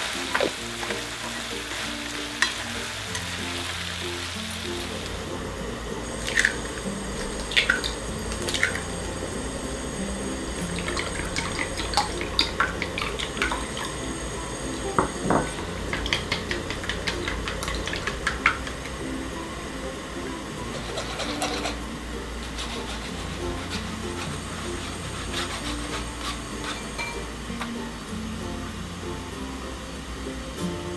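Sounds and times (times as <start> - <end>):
eggs cracking: 6.0 - 19.0
chopsticks tapping glass bowl: 14.9 - 18.9.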